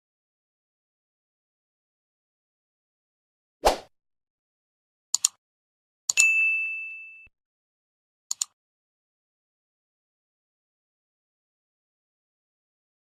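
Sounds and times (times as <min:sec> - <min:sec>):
bright bell ding: 0:06.2 - 0:07.3
quick double click: 0:08.3 - 0:08.6.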